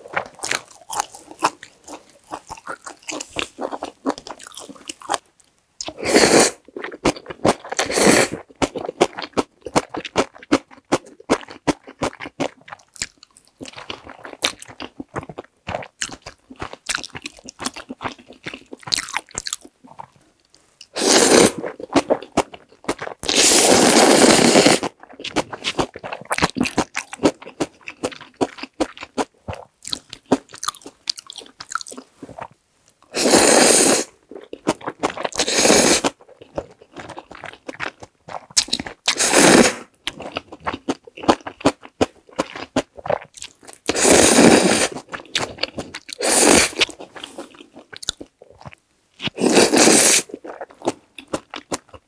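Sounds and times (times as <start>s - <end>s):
chewing and wet mouth sounds: 0.0s - 6.0s, 6.6s - 33.2s, 34.1s - 52.0s
noodle slurps: 21.0s - 21.8s, 23.2s - 25.0s, 33.1s - 34.1s, 35.3s - 36.2s, 39.1s - 39.9s, 43.9s - 45.1s, 46.1s - 46.8s, 49.3s - 50.7s.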